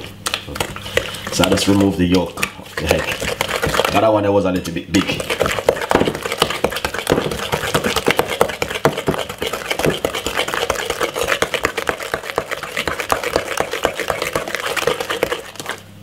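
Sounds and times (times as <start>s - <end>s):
wooden spoon knocking glass bowl: 5.0s - 15.4s
wet slap of batter: 5.0s - 15.8s.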